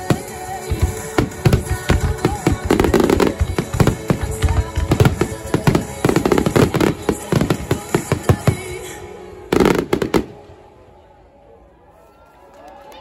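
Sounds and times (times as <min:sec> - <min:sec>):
fireworks bangs and crackles: 0:00.0 - 0:10.4.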